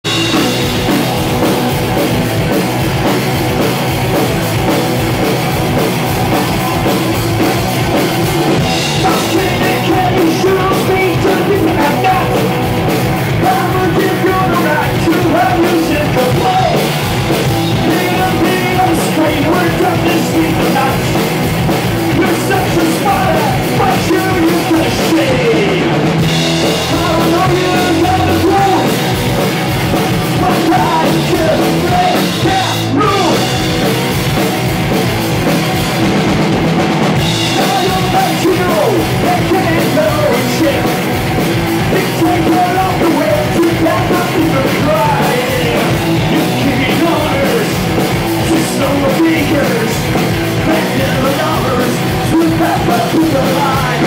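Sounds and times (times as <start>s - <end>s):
rock band playing: 0.0s - 54.0s
man singing into a microphone: 8.8s - 12.6s, 13.4s - 16.9s, 17.8s - 21.3s, 22.1s - 26.1s, 26.8s - 29.1s, 30.3s - 33.6s, 37.4s - 41.0s, 41.9s - 54.0s.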